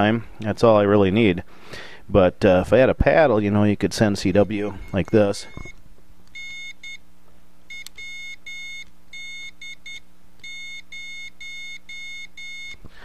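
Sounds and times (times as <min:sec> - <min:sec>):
high-pitched morse code beeps: 0:06.4 - 0:07.0, 0:07.7 - 0:12.8.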